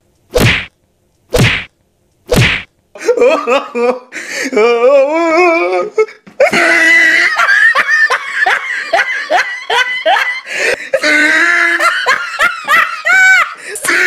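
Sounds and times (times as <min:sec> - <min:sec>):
person laughing hard: 0:03.0 - 0:04.8, 0:06.4 - 0:14.0.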